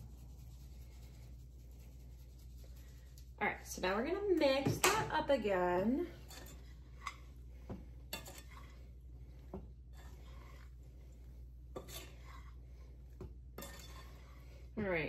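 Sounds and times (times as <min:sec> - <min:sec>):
utensil scraping pasta in skillet: 0:05.6 - 0:14.9.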